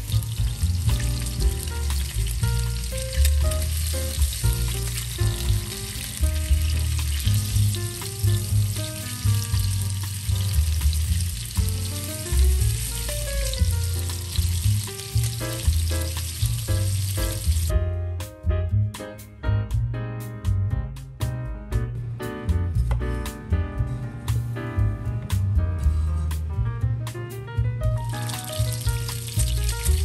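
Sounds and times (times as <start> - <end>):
fish sizzling in hot oil: 0.0 - 17.7, 28.0 - 30.0
background music with bass line: 0.0 - 30.0.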